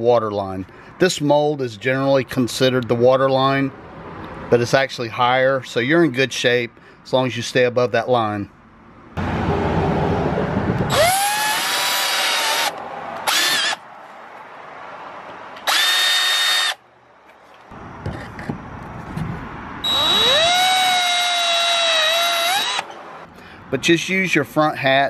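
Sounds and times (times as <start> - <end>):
cordless drill boring plastic: 10.9 - 13.8, 15.6 - 16.8, 19.8 - 22.9.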